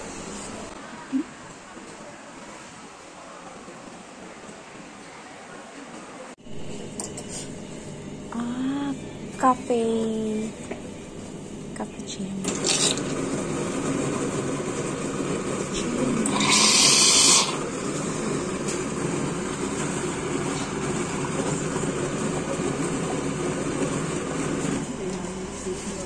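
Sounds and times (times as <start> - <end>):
coffee machine pump and motor: 6.4 - 26.0
liquid streaming into a cup: 16.3 - 17.7
loud hiss: 16.4 - 17.6.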